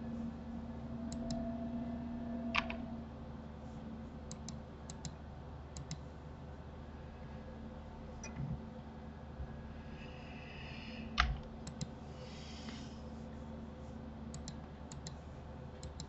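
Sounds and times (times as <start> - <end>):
faint low hum: 0.0 - 16.0
mouse and keyboard clicks: 11.2 - 11.9, 14.3 - 15.2, 15.8 - 16.0.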